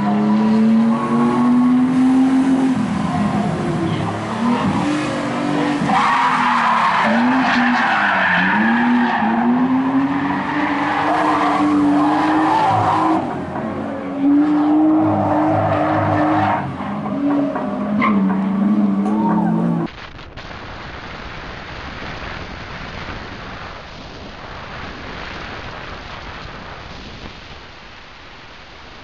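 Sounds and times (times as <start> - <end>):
race car engine revving: 0.0 - 19.9.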